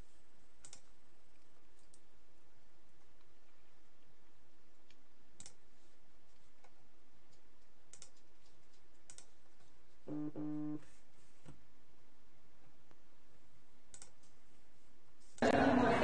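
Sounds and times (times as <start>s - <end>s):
computer mouse clicks: 0.6s - 2.1s, 4.8s - 5.6s, 6.3s - 9.7s, 13.9s - 14.4s
short low hum: 10.1s - 10.9s.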